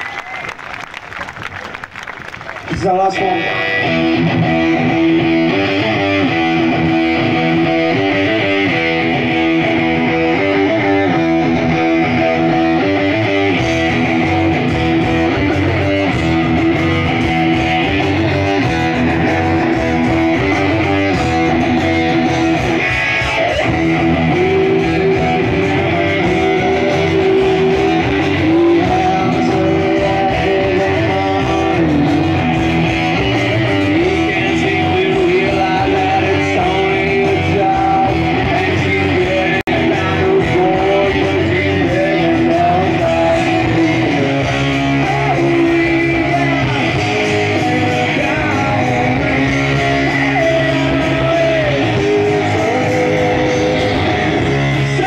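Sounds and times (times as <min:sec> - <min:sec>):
live rock band playing: 0:02.6 - 0:55.0.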